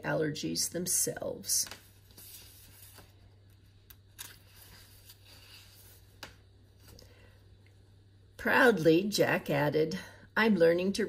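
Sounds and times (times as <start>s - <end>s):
low steady hum: 0.0s - 11.0s
paper rustling: 1.6s - 7.0s.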